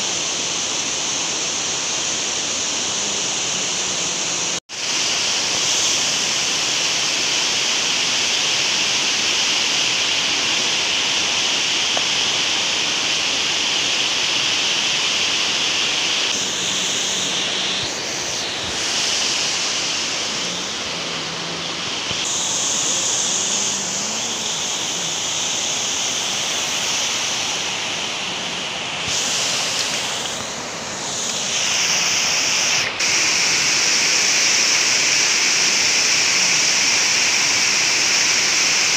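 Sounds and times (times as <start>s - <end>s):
water rushing over a weir: 0.0s - 38.9s.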